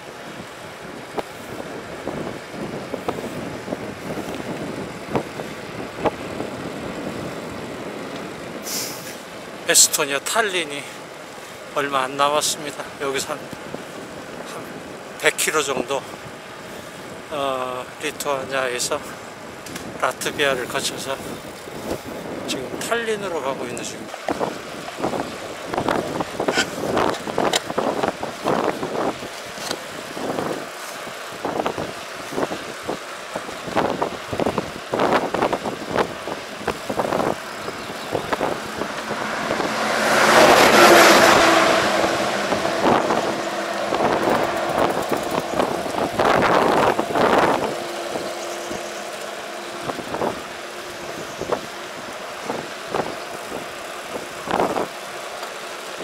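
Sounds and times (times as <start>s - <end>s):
steady engine hum: 0.0s - 9.8s, 23.6s - 56.0s
wind buffeting microphone: 0.0s - 9.8s, 11.0s - 15.2s, 15.8s - 56.0s
road traffic: 0.0s - 56.0s
vehicle passing loudly: 36.4s - 56.0s.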